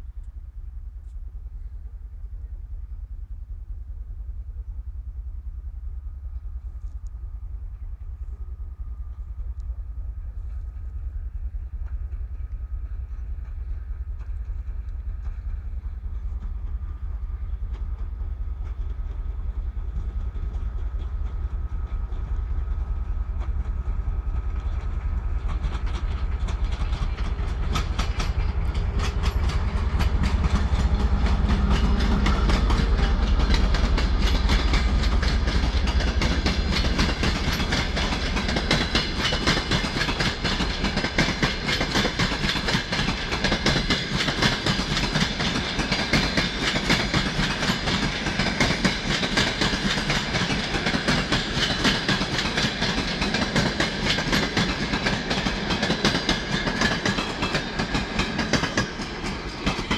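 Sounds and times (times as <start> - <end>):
diesel locomotive engine rumble: 0.0 - 59.9
wheels clicking over rail joints: 23.3 - 59.9.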